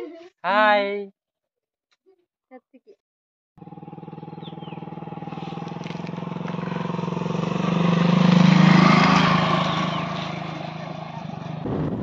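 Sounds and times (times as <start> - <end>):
motorcycle engine passing: 3.6 - 12.0.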